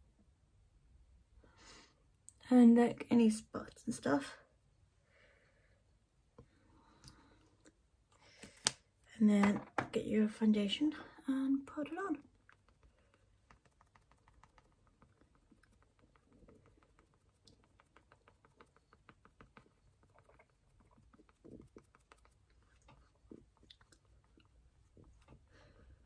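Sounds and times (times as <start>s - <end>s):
patting and tapping on face: 12.0s - 25.4s.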